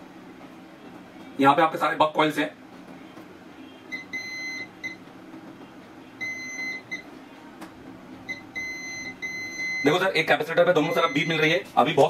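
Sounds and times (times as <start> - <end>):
multimeter continuity beeps: 3.9 - 5.0, 6.2 - 7.1, 8.3 - 10.2, 10.8 - 11.6.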